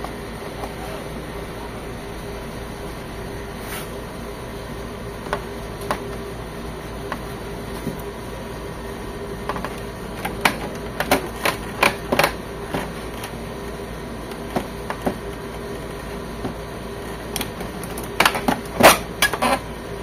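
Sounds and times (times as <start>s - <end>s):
steady low hum: 0.0s - 20.0s
printer scanner clicks and knocks: 9.5s - 13.3s, 17.4s - 19.4s.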